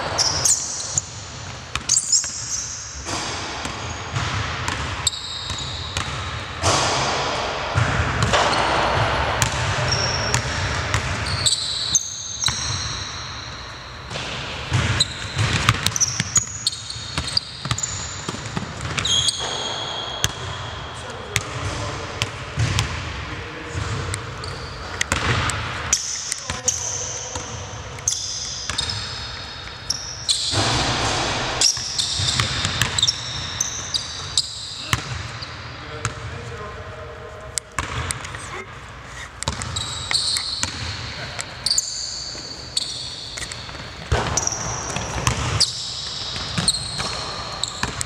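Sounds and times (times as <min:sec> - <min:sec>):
sneakers squeaking on court: 0:00.0 - 0:36.5, 0:37.7 - 0:48.0
basketball bouncing on hardwood floor: 0:14.1 - 0:20.4, 0:21.4 - 0:23.0, 0:25.0 - 0:25.6, 0:39.4 - 0:41.0, 0:43.7 - 0:48.0.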